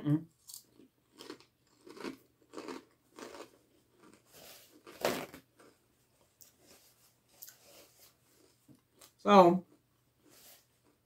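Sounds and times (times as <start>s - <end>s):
crunchy chewing of chip: 0.4s - 5.8s.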